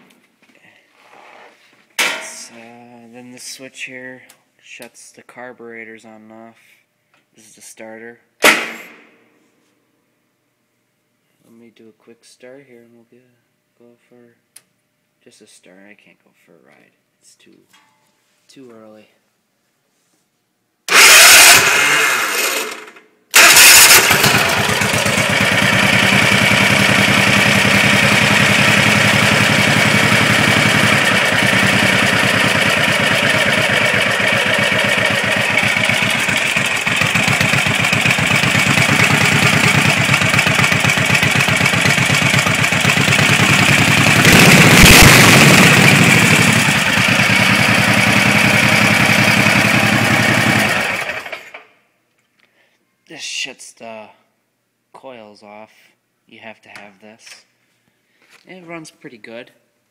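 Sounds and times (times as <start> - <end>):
loud engine burst: 20.9 - 37.6, 38.5 - 51.5
lawnmower engine starting and running: 20.9 - 51.7.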